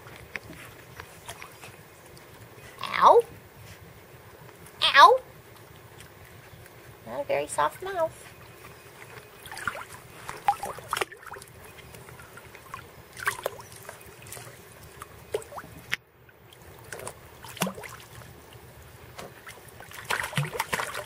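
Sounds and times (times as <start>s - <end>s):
pool water lapping: 0.0s - 21.0s
small water splashes: 8.4s - 21.0s.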